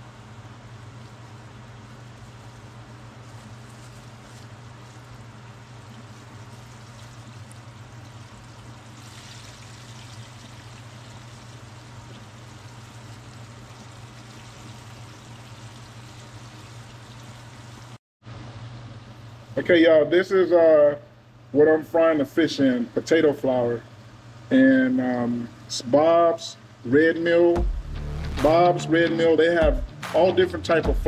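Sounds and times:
constant low hum: 0.0 - 31.0
fish deep-frying in oil: 0.7 - 18.0.

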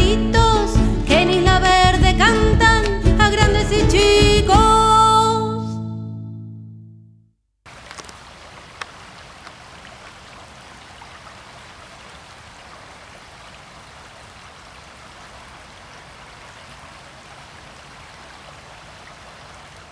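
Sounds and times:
stream flowing over stones: 7.7 - 19.9
small clicks: 7.8 - 8.2.

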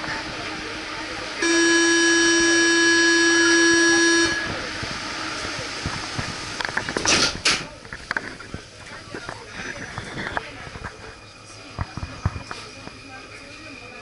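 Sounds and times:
train door warning buzzer: 1.4 - 4.8.

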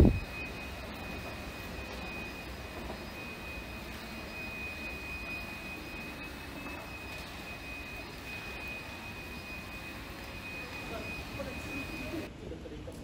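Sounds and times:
high-pitched whine: 0.0 - 12.3.

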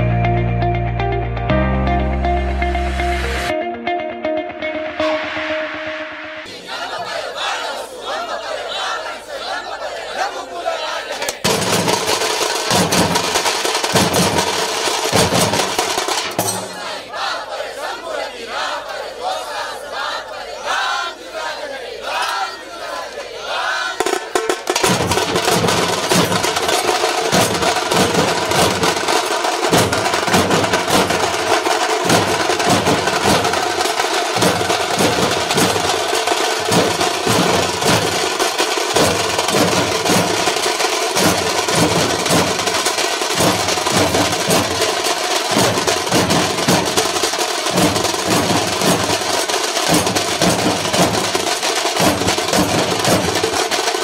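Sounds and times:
drums beaten in driving rhythm: 11.2 - 17.3, 23.8 - 54.0
sharp high clattering drum hits: 11.4 - 17.2, 24.0 - 54.0.

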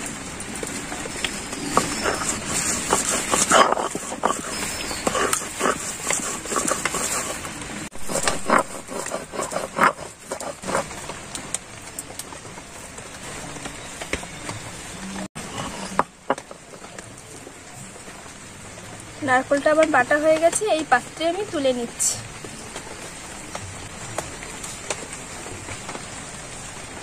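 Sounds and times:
stone scraping on stone: 0.6 - 11.2.

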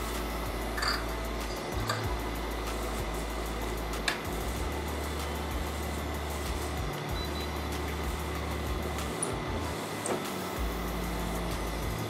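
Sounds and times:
background music with bass line: 0.0 - 12.0.

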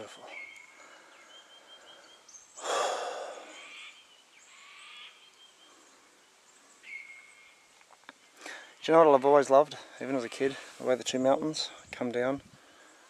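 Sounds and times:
person sighing: 2.6 - 3.6.

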